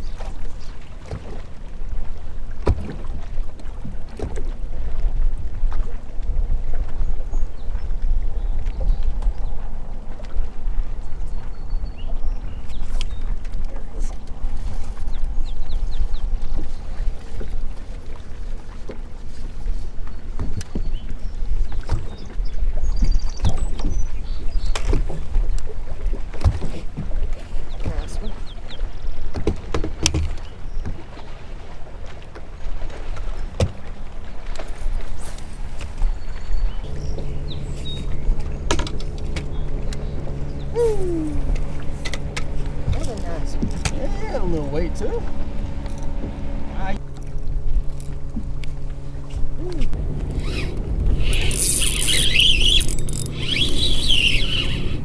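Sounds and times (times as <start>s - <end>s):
water slapping against boat hull: 0.0s - 7.1s, 12.6s - 55.0s
wind: 0.0s - 55.0s
wind rumbling on microphone: 32.6s - 55.0s
electric trolling motor humming: 36.8s - 55.0s
short falling whine: 49.6s - 55.0s.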